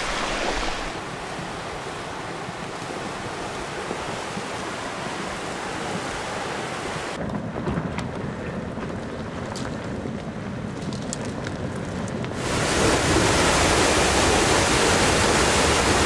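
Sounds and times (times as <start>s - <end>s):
flash flood water rushing: 0.0s - 7.2s, 12.4s - 16.0s
debris flow rumble: 7.2s - 16.0s
rocks clicking and knocking: 8.9s - 12.4s.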